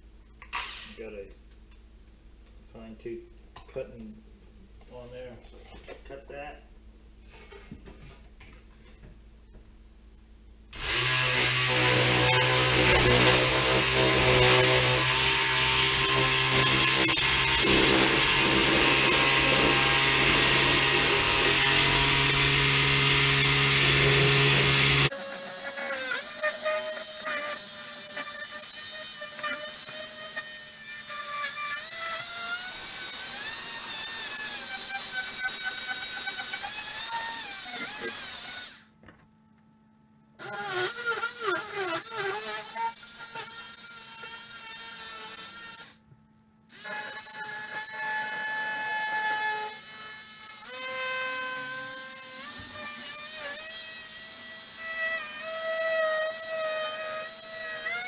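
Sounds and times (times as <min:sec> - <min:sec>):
oscillating tool buzzing: 0:10.8 - 0:38.9, 0:40.4 - 0:46.0, 0:46.7 - 0:58.0.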